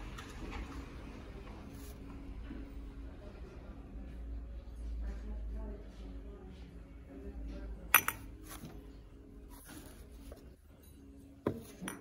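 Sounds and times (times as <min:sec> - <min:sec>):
pottery pieces clinking: 0:07.9 - 0:08.7, 0:10.9 - 0:12.0.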